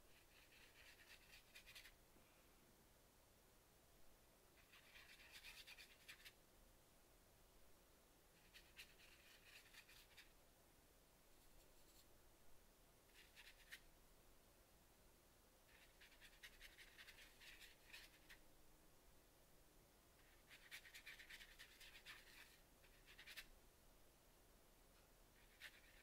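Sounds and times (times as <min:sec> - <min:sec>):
paintbrush dabbing on paper: 0:00.1 - 0:02.0, 0:04.6 - 0:06.4, 0:08.4 - 0:10.4, 0:13.1 - 0:13.9, 0:15.7 - 0:18.4, 0:20.2 - 0:23.5, 0:25.4 - 0:26.0.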